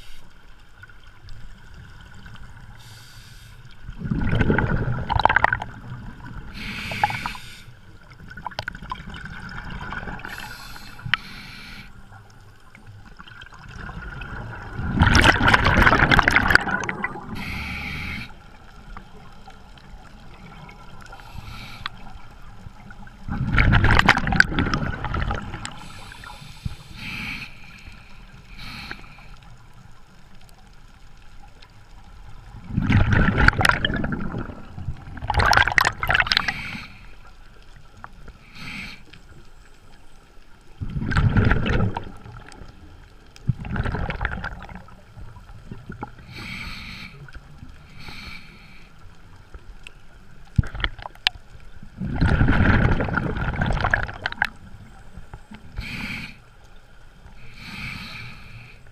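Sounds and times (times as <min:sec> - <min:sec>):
hissing regulator inhalations: 0:02.8 - 0:03.7, 0:06.5 - 0:07.8, 0:10.2 - 0:12.0, 0:17.3 - 0:18.5, 0:21.1 - 0:22.3, 0:25.7 - 0:29.6, 0:36.3 - 0:37.3, 0:38.5 - 0:39.3, 0:46.2 - 0:49.2, 0:55.6 - 0:56.6, 0:57.4 - 0:58.9
bubbling underwater exhalation: 0:04.0 - 0:05.8, 0:13.6 - 0:17.6, 0:32.6 - 0:36.5, 0:40.8 - 0:42.5, 0:43.5 - 0:44.9, 0:52.0 - 0:54.6.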